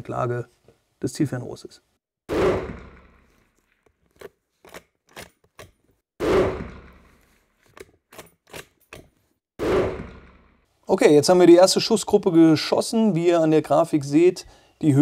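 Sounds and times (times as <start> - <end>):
rifle shots: 2.3 - 3.2, 6.2 - 7.2, 9.6 - 10.3.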